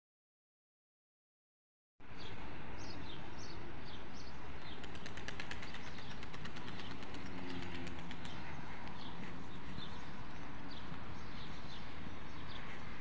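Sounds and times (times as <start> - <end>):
street ambience rumble: 2.0 - 13.0
small birds chirping: 2.2 - 13.0
fast run of ticks: 4.8 - 9.9.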